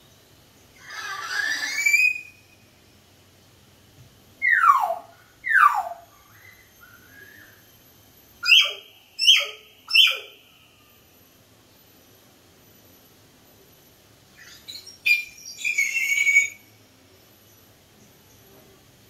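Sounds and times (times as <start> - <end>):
soft parrot chatter: 0.7 - 2.3.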